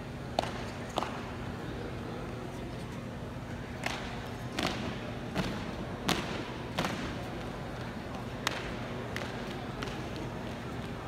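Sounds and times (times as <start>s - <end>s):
sharp claps and stomps: 3.8s - 7.2s, 8.4s - 10.3s.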